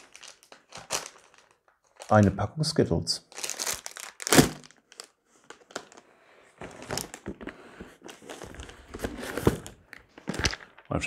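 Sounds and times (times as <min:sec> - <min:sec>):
plastic packaging crinkling: 0:00.0 - 0:02.3, 0:03.3 - 0:06.0.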